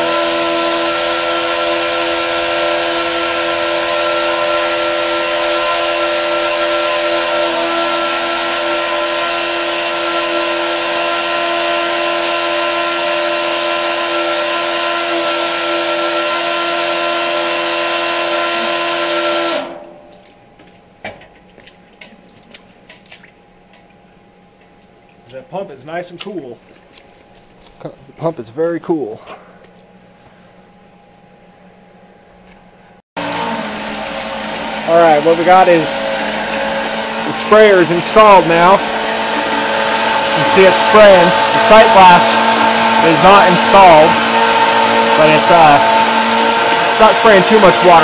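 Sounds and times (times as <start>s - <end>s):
water spraying from nozzle: 0.0s - 20.4s, 33.2s - 48.0s
electric water pump whining: 0.0s - 48.0s
faint clicks and drips: 19.9s - 28.9s.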